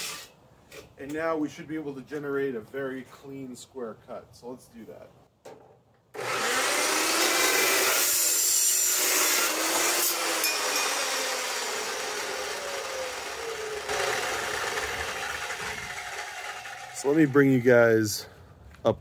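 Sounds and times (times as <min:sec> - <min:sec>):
chop saw cutting steel: 0:00.0 - 0:00.3, 0:06.2 - 0:17.6.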